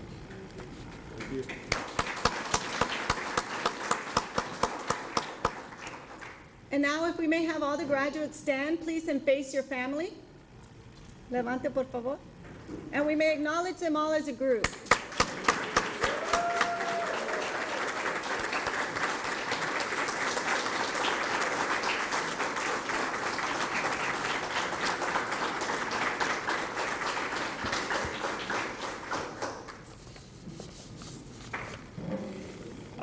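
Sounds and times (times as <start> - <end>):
audience applauding: 1.2 - 6.4, 14.9 - 30.0.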